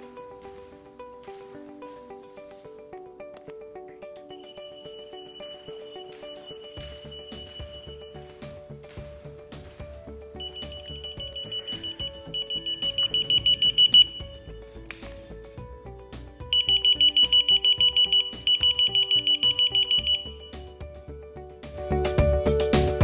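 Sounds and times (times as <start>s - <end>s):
background music: 0.0s - 23.0s
rapid high-pitched electronic beeping: 10.4s - 14.4s, 16.5s - 20.5s.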